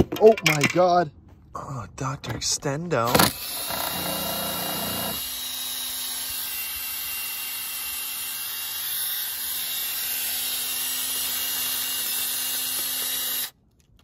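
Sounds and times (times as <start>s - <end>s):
impact driver whining: 3.1s - 13.6s.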